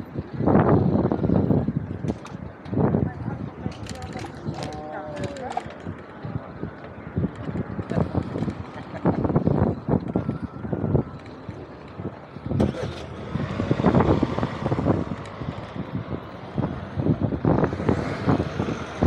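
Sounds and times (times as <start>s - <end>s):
street noise: 0.0s - 19.0s
wind buffeting microphone: 0.0s - 19.0s.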